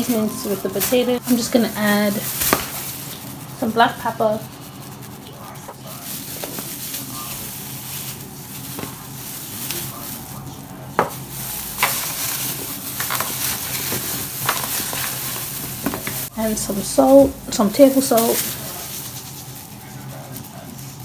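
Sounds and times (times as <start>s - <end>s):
plastic gloves crinkling: 0.0s - 21.0s
potato pieces knocking: 2.4s - 2.9s.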